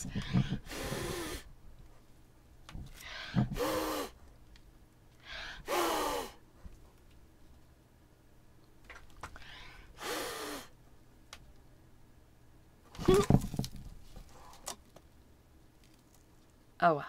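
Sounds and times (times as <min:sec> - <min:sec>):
person blowing hard: 0:00.0 - 0:01.5, 0:03.1 - 0:04.2, 0:05.3 - 0:06.4, 0:10.0 - 0:10.7.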